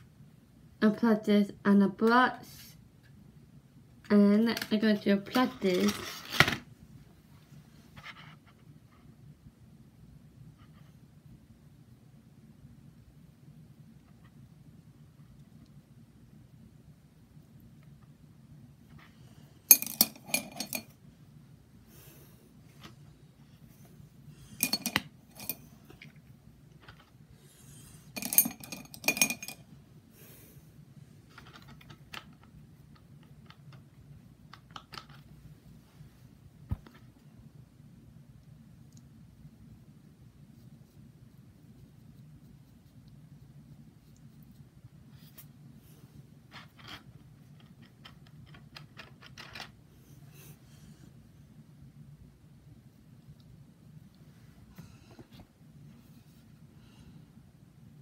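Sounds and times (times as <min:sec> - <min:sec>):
low steady hum: 0:00.0 - 0:58.0
makeup brushes clicking and tapping: 0:24.6 - 0:26.1.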